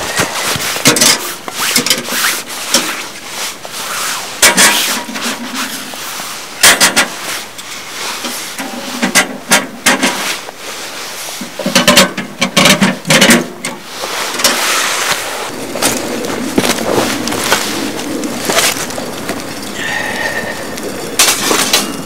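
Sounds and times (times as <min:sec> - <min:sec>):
rustling: 0:00.0 - 0:13.2, 0:13.8 - 0:22.0.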